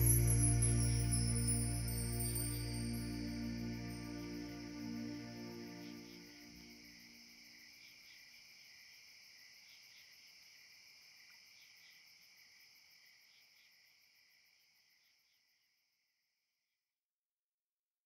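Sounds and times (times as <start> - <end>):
song music: 0.0 - 6.5
crickets chirring: 0.0 - 15.8.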